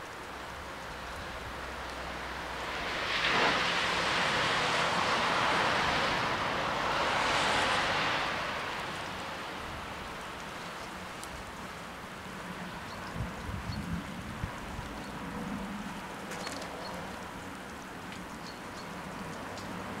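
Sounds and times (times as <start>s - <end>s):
rain on a wet road: 0.0s - 20.0s
rushing noise: 1.5s - 10.1s.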